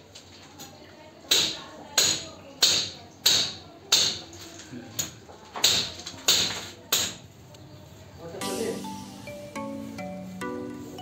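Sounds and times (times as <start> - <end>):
hammer striking chisel on masonry: 1.3 - 4.2, 5.6 - 7.2.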